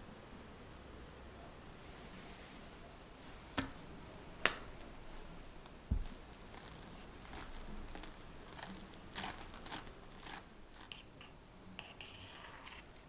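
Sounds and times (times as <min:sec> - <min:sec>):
spatula scraping cream: 0:06.0 - 0:13.0.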